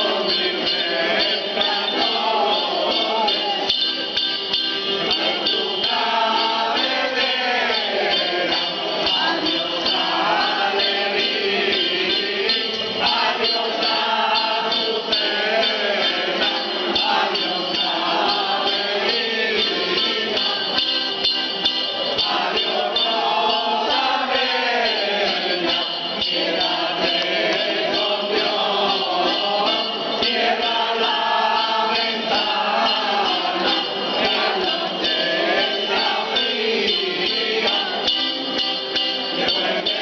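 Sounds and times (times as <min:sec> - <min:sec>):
group singing: 0:00.0 - 0:40.0.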